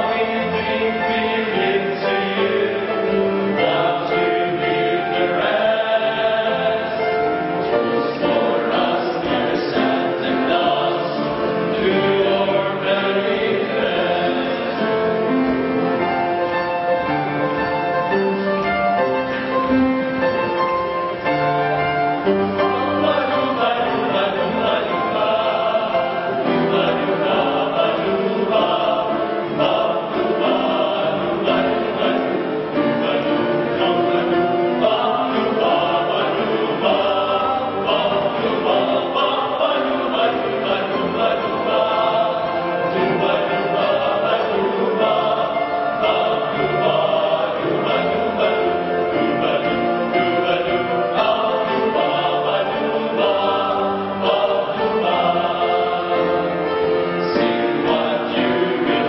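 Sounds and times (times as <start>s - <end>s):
choir singing gospel: 0.0s - 59.0s.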